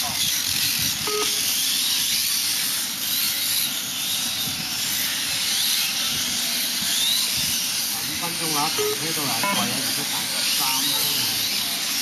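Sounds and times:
rc motorcycle motors whining: 0.0s - 12.0s.

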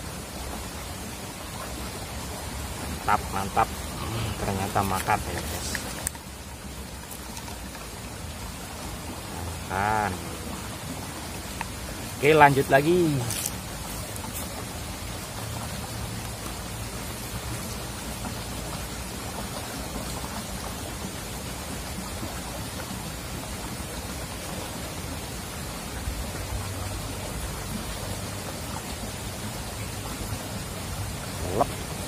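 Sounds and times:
stream rippling over stones: 0.0s - 32.0s.

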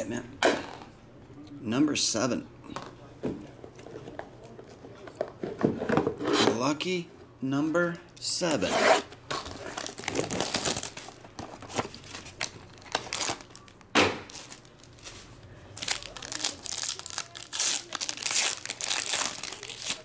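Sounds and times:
foil pack crinkling and tearing: 9.4s - 20.0s.

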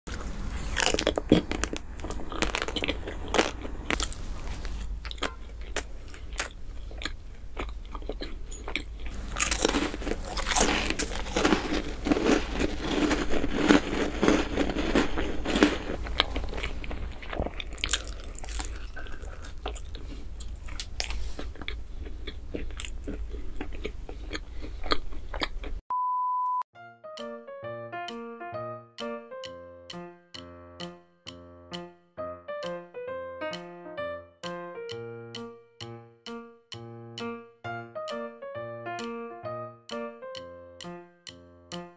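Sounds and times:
biscuits crunching and chewing: 0.1s - 25.8s
short steady beep: 25.9s - 26.6s.

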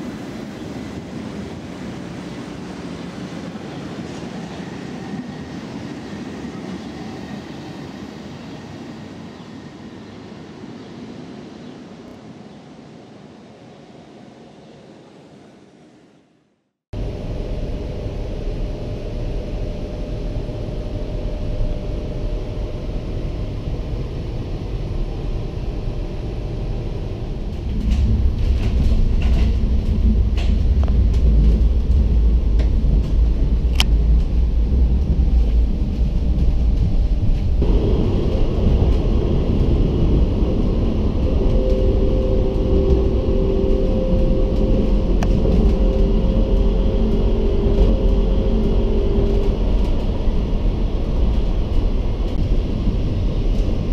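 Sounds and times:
tram wheels rumbling: 0.0s - 15.5s, 17.0s - 53.9s
steady humming tones: 17.0s - 53.9s.

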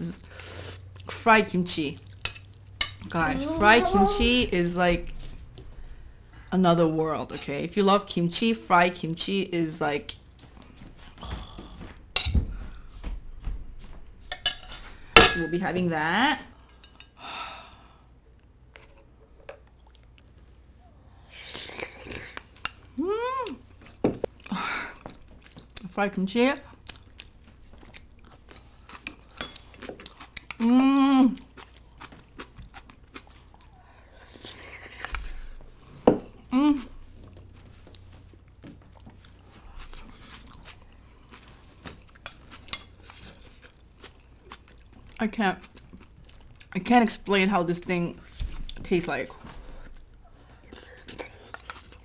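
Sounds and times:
quiet chewing: 18.4s - 25.9s, 26.7s - 35.9s, 36.9s - 46.8s, 49.5s - 52.0s.

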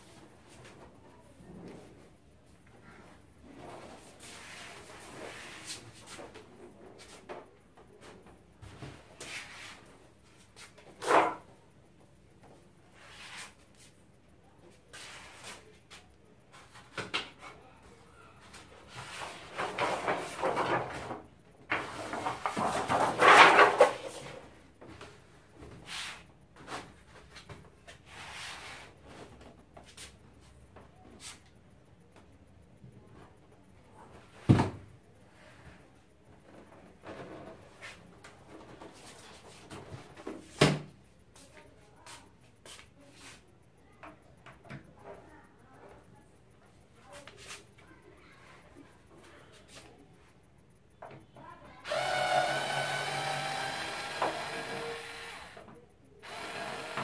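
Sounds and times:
screwdriver clicking on screws: 51.8s - 55.6s, 56.2s - 57.0s.

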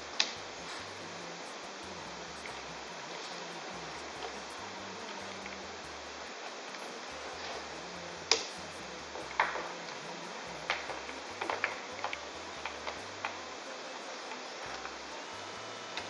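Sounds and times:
steady background hiss: 0.0s - 16.0s.

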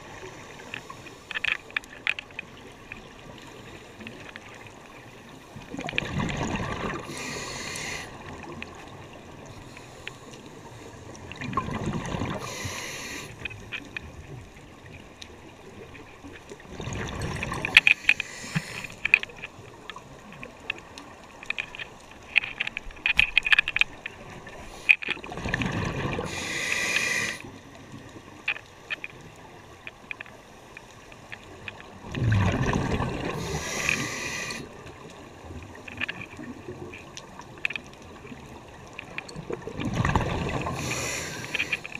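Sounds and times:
faint clicks: 0.3s - 6.1s, 7.0s - 25.6s, 26.3s - 32.1s, 33.3s - 41.9s
diver breathing through regulator: 7.0s - 8.2s, 12.3s - 13.4s, 17.8s - 19.0s, 26.2s - 27.5s, 33.2s - 34.7s, 40.6s - 41.9s
bubbling exhalations: 32.1s - 34.5s.

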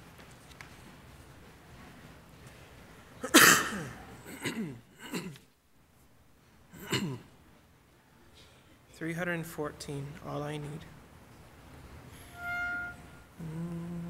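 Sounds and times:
person coughing: 3.2s - 5.4s, 6.8s - 7.3s
person sneezing: 3.2s - 5.4s.

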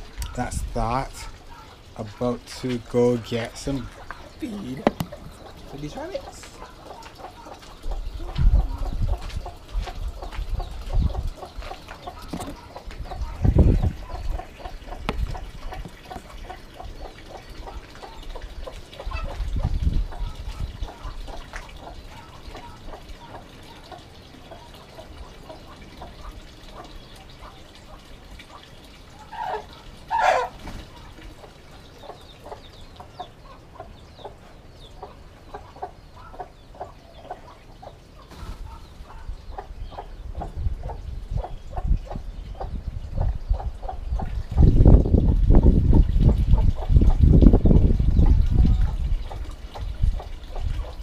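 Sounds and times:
chickens clucking: 0.0s - 51.0s
chicken squawk: 29.3s - 30.6s.

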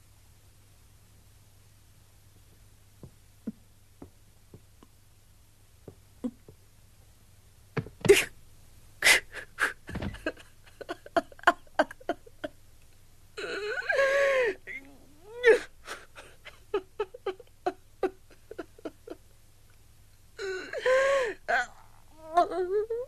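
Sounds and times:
boy sobbing: 9.0s - 12.5s, 13.4s - 19.2s, 20.4s - 23.0s.

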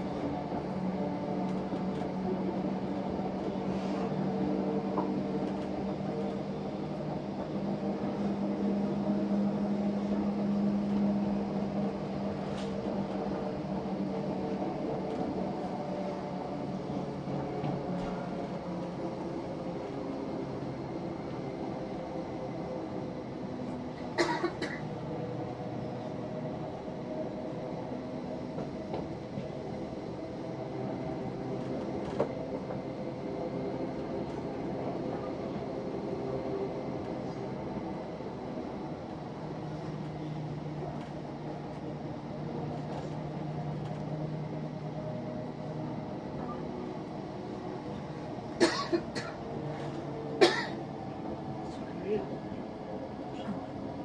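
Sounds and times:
train wheels on rails: 0.0s - 21.3s, 22.9s - 51.9s.

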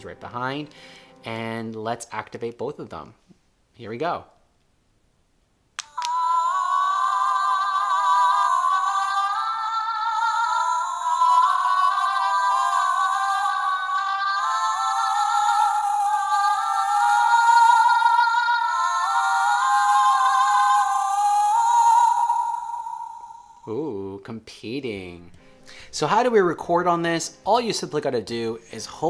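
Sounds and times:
tinny toy speakers singing: 5.8s - 24.1s.

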